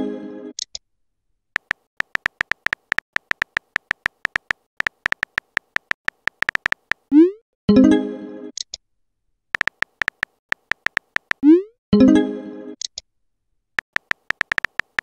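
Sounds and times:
phone keyboard tap clicks: 1.6 - 7.1, 9.6 - 11.4, 13.8 - 15.0.

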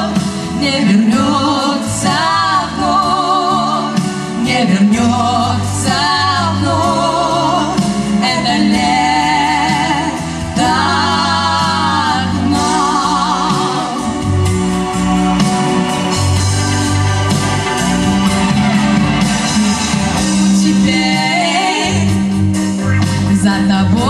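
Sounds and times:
two women singing with vibrato: 0.0 - 14.5, 20.3 - 22.4, 23.4 - 24.0
instrumental accompaniment: 0.0 - 24.0.

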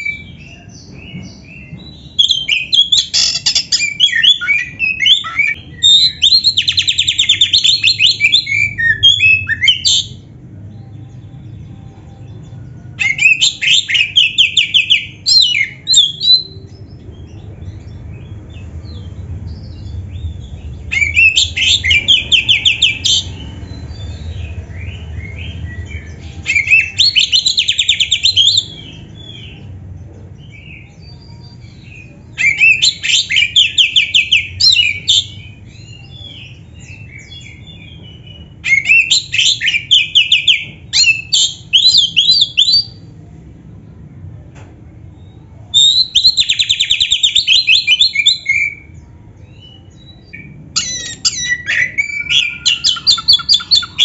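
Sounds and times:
quieter bird chirps and calls: 0.0 - 29.8, 45.2 - 54.0
bird singing rapid high notes: 2.0 - 10.2, 49.5 - 54.0.

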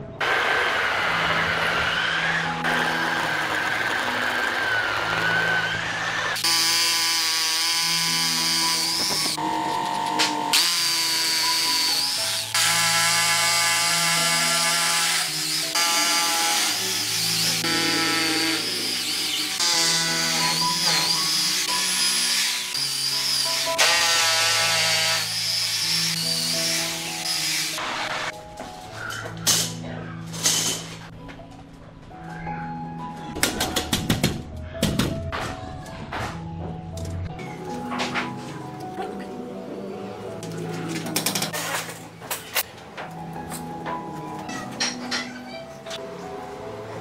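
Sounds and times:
hammer drill whining into concrete: 0.2 - 9.5.

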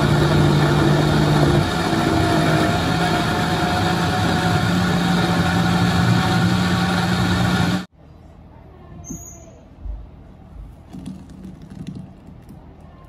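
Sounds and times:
blender motor grinding: 0.0 - 7.9.

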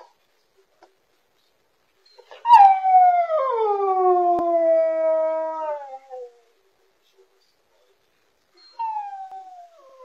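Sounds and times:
dog howling: 2.4 - 6.4, 8.8 - 10.0.

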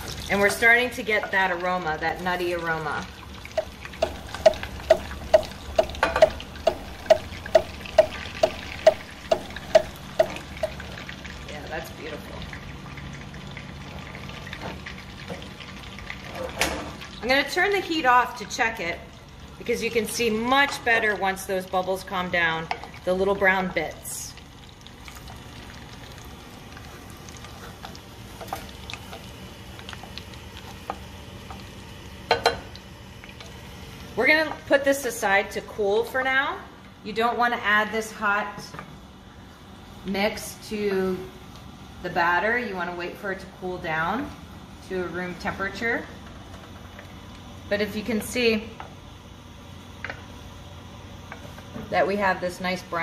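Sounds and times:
butter sizzling and bubbling: 0.0 - 17.3, 20.8 - 34.2
butter sizzling and popping: 3.2 - 11.3, 24.8 - 31.8
wooden spoon knocking on saucepan: 3.6 - 10.8.

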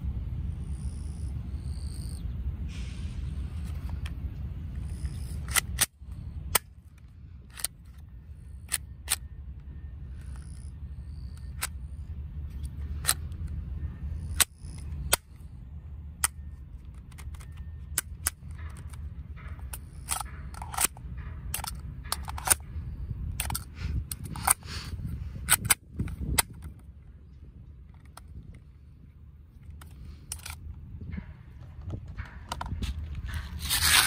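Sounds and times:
airsoft pistol clicks and snaps: 4.9 - 11.8, 16.2 - 24.6, 25.4 - 26.9, 29.6 - 30.8
wind on microphone: 22.6 - 28.8.

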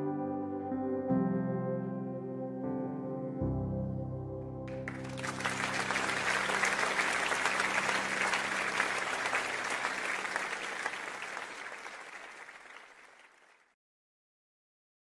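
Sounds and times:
many hands clapping: 4.7 - 13.8.

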